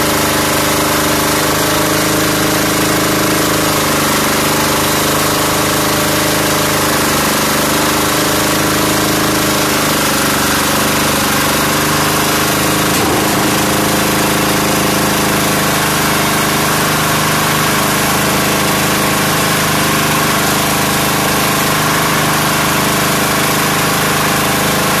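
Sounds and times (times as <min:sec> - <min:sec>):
diesel engine running: 0:00.0 - 0:25.0
brief knock: 0:12.9 - 0:15.0.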